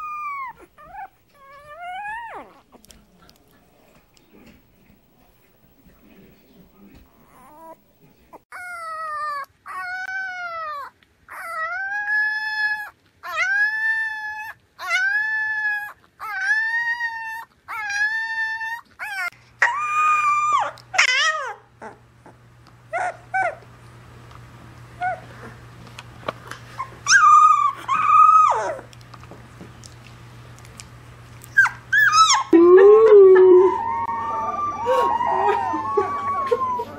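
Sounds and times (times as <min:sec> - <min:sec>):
puppy yips: 0:00.0 - 0:02.7, 0:08.5 - 0:22.0, 0:26.8 - 0:28.9, 0:31.5 - 0:32.6
puppies howling: 0:00.0 - 0:03.5, 0:08.5 - 0:23.7, 0:26.8 - 0:29.0, 0:31.4 - 0:36.9.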